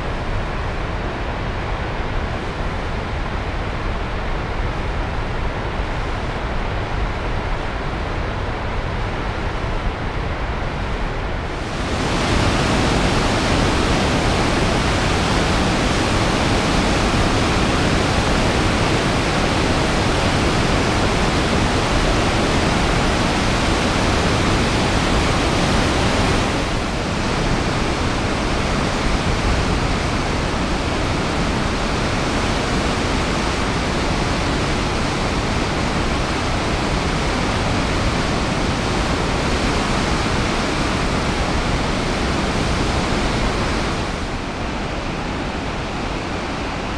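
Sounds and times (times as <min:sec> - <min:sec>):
river rapids rushing: 0:11.5 - 0:46.9.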